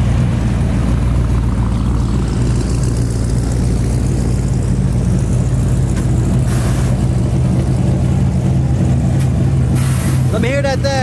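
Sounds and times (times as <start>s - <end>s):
car engines idling: 0.0s - 11.0s.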